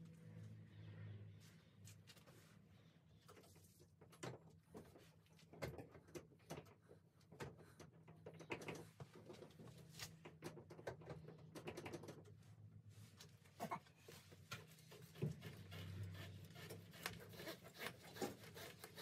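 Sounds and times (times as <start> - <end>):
small clicks and taps: 3.2 - 12.4.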